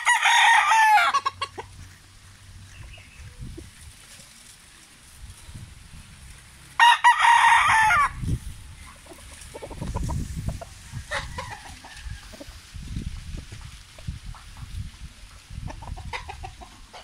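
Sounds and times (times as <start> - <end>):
rooster crowing: 0.0 - 1.4, 6.8 - 8.2, 10.8 - 12.6.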